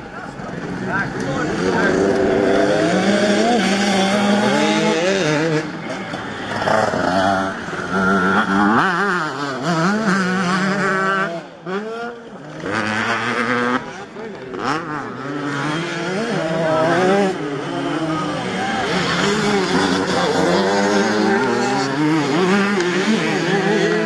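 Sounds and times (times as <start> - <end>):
motocross bikes revving: 0.0 - 24.0.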